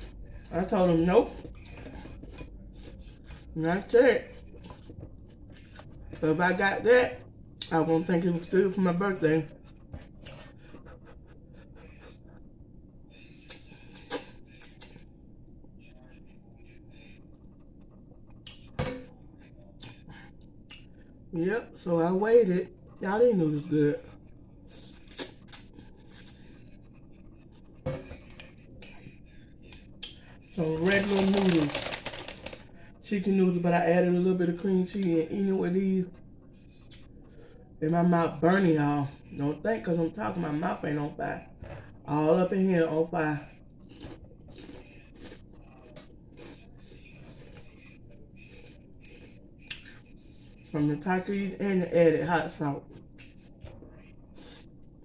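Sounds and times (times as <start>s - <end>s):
person chewing noodles: 1.3s - 3.6s, 4.3s - 6.2s, 43.7s - 50.7s.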